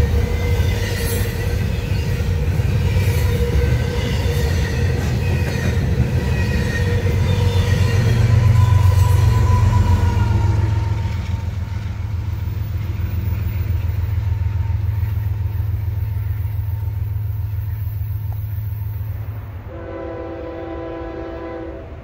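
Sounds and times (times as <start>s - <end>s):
freight train rumbling past: 0.0s - 22.0s
locomotive horn: 6.5s - 11.5s, 19.7s - 22.0s.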